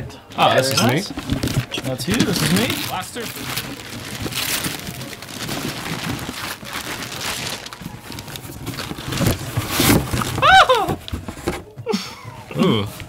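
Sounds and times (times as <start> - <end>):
wrapping paper tearing: 0.7 - 11.2
cardboard box flaps handled: 7.3 - 11.7.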